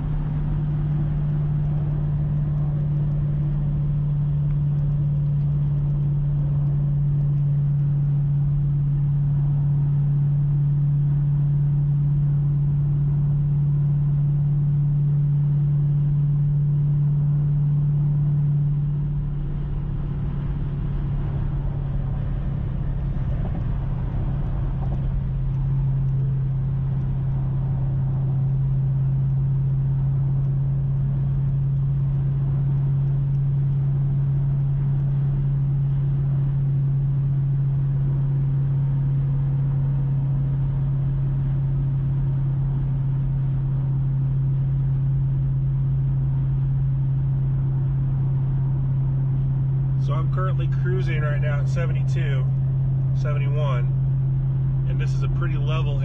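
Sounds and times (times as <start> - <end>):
road noise: 0.0 - 9.9, 18.2 - 37.6, 46.3 - 56.0
low exhaust drone: 0.0 - 56.0.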